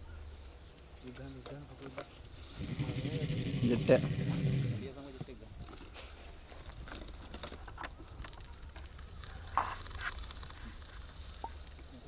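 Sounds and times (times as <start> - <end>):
rustles and taps in grass: 0.4 - 2.6, 5.0 - 12.0.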